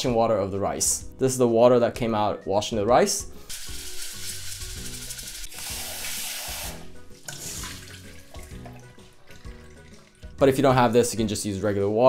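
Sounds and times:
light background music: 0.0s - 12.0s
water poured into steel sink: 3.5s - 10.4s
rice washed by hand in water: 3.5s - 10.8s.

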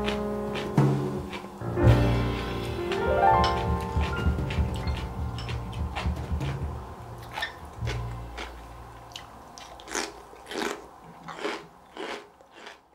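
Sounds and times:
soft background music: 0.0s - 9.9s
crunchy pickle being chewed: 7.2s - 12.9s.

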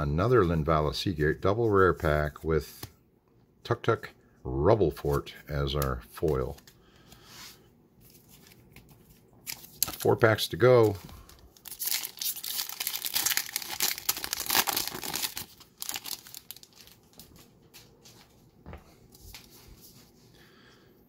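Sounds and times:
wrapper tearing and crinkling: 11.5s - 17.4s.

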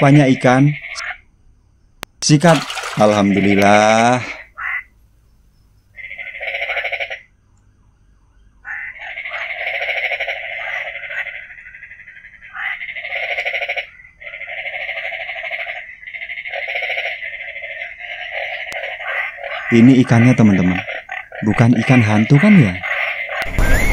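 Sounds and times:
frog calling: 0.0s - 1.3s, 2.2s - 7.4s, 8.6s - 23.9s.

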